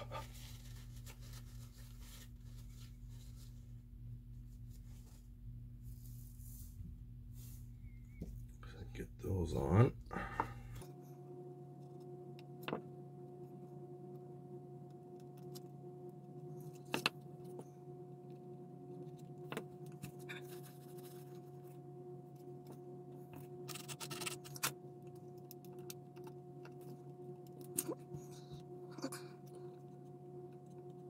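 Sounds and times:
tissue rustling: 0.0s - 7.8s
low hum: 0.0s - 31.0s.

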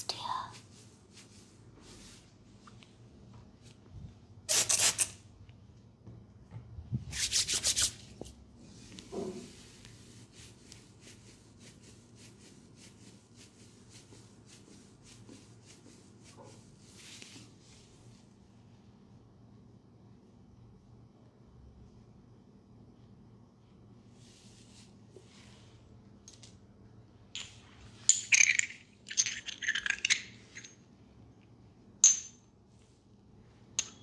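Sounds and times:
hands rubbing cloth: 0.5s - 2.9s, 7.1s - 18.2s.

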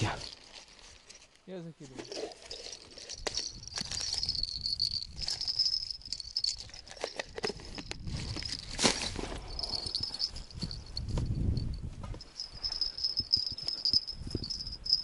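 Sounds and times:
wind on microphone: 3.1s - 15.0s
high chirring: 12.2s - 15.0s.

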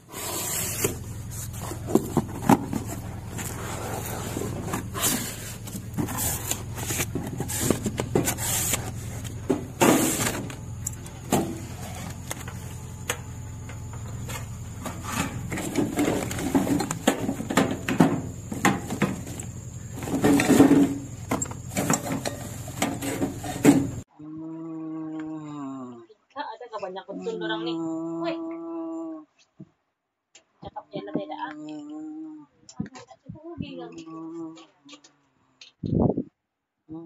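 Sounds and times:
steady low hum: 0.0s - 29.3s
cardboard and plastic rustling: 0.1s - 24.1s.

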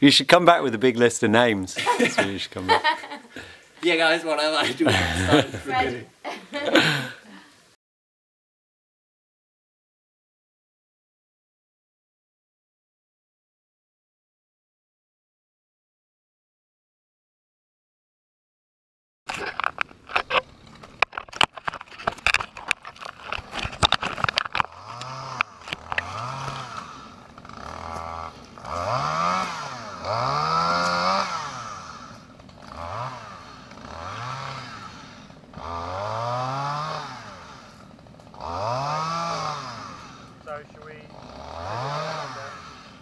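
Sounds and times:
small engine revving: 23.3s - 43.0s.

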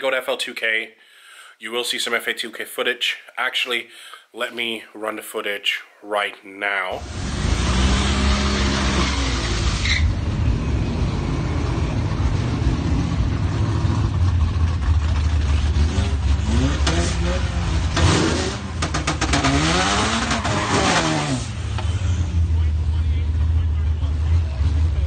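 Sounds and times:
car engine running and revving: 7.0s - 25.0s
sharp exhaust cracks: 14.1s - 22.2s.

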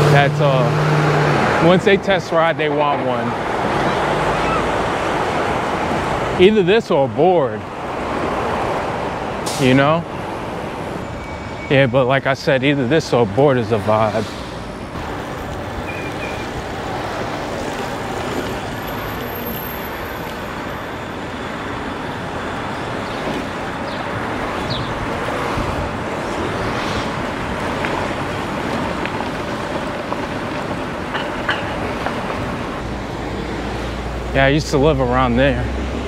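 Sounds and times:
road traffic noise: 0.0s - 36.0s.

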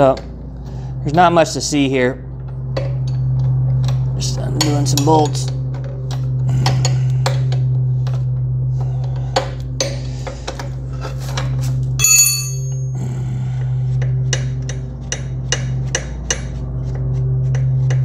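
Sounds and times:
steady low hum: 0.0s - 18.0s
ringing metal clink: 12.0s - 13.0s.

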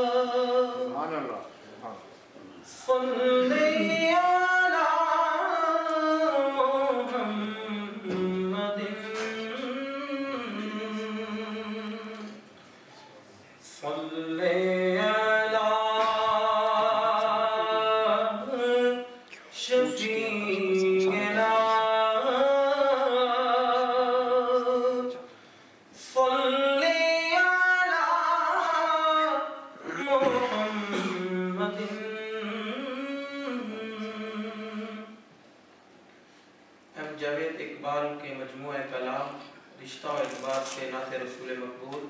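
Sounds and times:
man singing unaccompanied: 0.0s - 1.1s, 2.7s - 12.4s, 13.7s - 25.3s, 26.0s - 35.2s.

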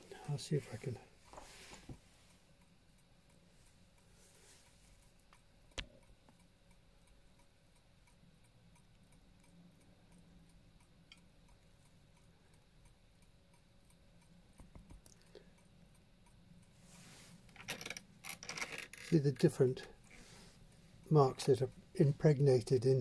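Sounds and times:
clock ticking: 2.0s - 16.8s, 18.0s - 23.0s.

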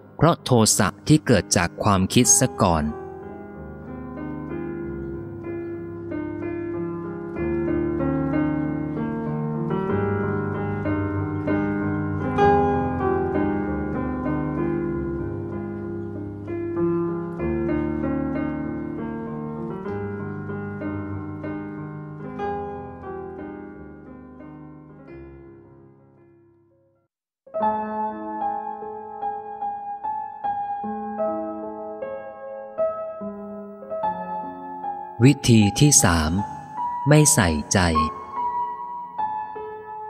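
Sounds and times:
slow solo piano music: 2.2s - 26.5s, 27.5s - 35.2s.

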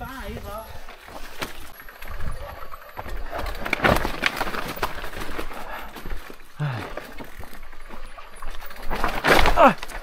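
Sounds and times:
mountain bike rattling on rocks: 0.0s - 10.0s.

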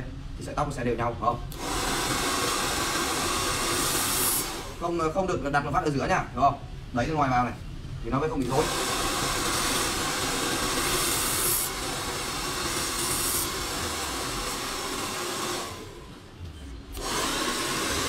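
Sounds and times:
hair dryer blowing: 1.6s - 4.8s, 8.4s - 16.2s, 16.9s - 18.0s.

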